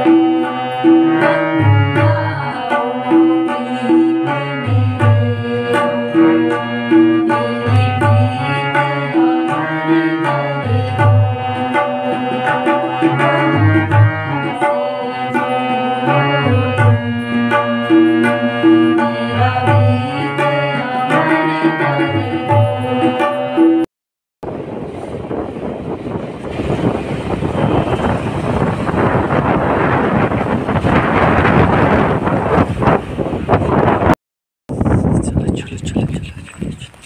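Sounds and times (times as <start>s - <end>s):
harmonium chords: 0.0s - 23.9s
tabla rhythm: 0.0s - 23.9s.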